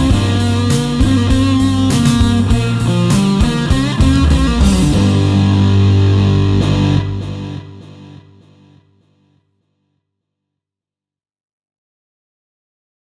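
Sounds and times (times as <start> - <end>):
rock backing track drums: 0.0 - 8.2
electric guitar with reverb: 0.0 - 9.4.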